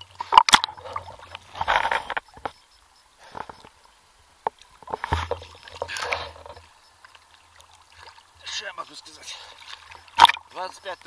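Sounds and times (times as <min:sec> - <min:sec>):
waves splashing against camera: 0:04.4 - 0:11.0.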